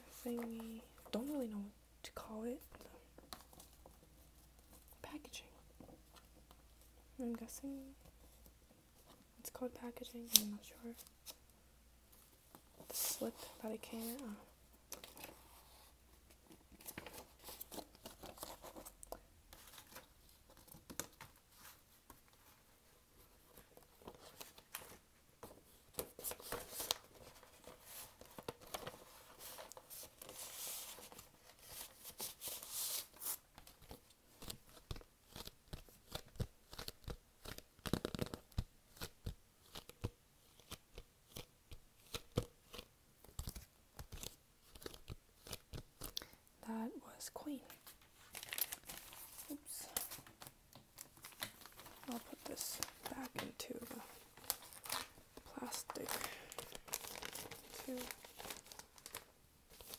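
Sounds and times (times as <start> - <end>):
paper sleeves rustling and sliding: 12.1 - 35.5, 47.7 - 59.9.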